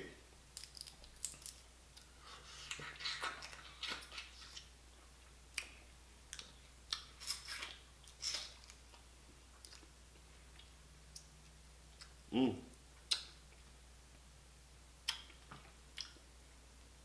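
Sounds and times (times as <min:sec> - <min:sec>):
crab shell crackling: 0:00.5 - 0:01.6.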